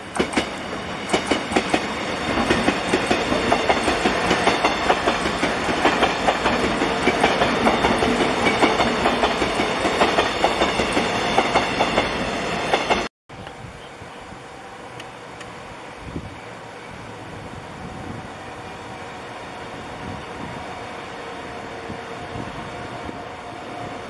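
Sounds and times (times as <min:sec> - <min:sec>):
train wheels clicking over rail joints: 0:00.1 - 0:13.6.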